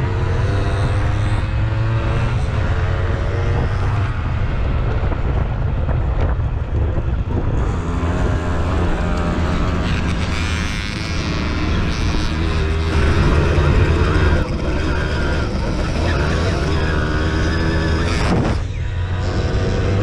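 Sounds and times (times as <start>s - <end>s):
moped two-stroke engine running: 7.8s - 18.2s.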